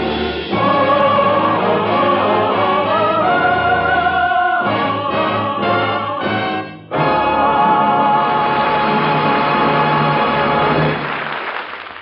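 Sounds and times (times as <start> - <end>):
choir and orchestra held chords: 0.0 - 11.0.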